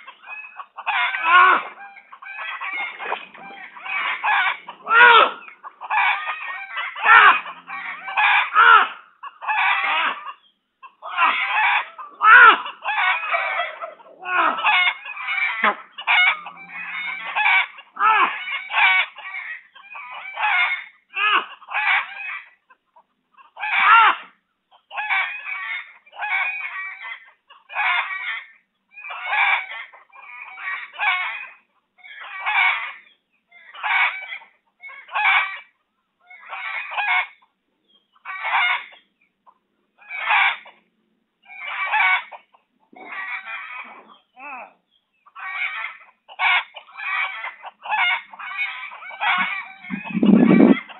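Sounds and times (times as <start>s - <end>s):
domestic fowl calling: 0.0s - 50.9s
low sliding sounds: 49.3s - 50.9s.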